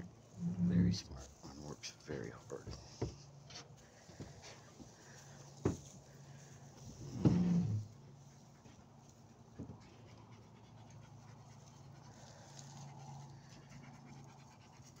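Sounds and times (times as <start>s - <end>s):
steady low hum: 0.0s - 15.0s
dog panting: 8.1s - 15.0s.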